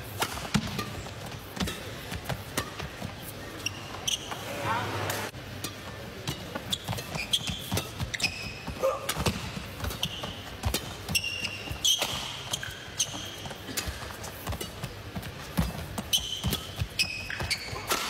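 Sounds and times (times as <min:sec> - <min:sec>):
racket hitting shuttlecock: 0:00.0 - 0:03.0, 0:05.2 - 0:18.0
shoes squeaking on court: 0:00.0 - 0:18.0
quick footfalls on court: 0:06.6 - 0:18.0.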